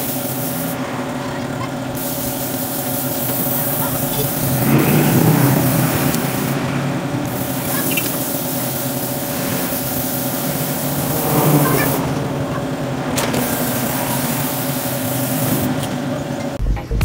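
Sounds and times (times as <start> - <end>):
spray gun hissing: 0.0 - 16.4
air compressor humming: 0.0 - 16.6.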